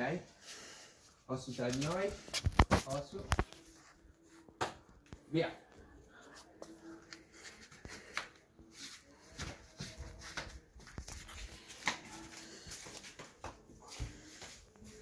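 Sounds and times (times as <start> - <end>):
feet scuffing on tiled floor: 6.3 - 15.0.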